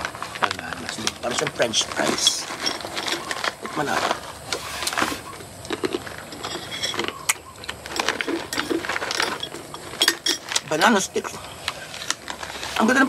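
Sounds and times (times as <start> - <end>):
plastic pouch crinkling: 0.0 - 6.3
crunchy snack chewing: 0.0 - 12.9.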